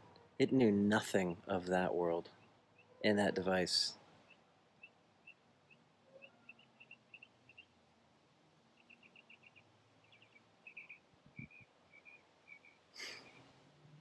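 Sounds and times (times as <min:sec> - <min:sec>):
small bird chirping: 0:04.2 - 0:07.8, 0:08.7 - 0:13.6.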